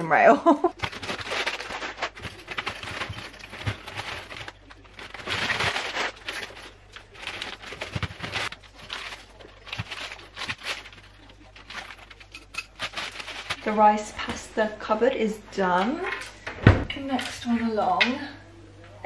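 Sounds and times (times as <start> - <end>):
plastic packets crinkling: 0.7 - 14.6.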